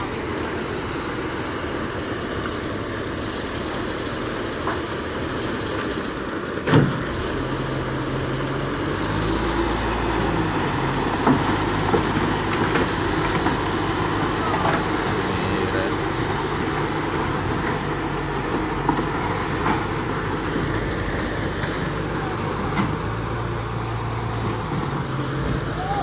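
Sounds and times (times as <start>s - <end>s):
heavy diesel engine running: 0.0s - 26.0s
deep engine hum: 8.4s - 26.0s.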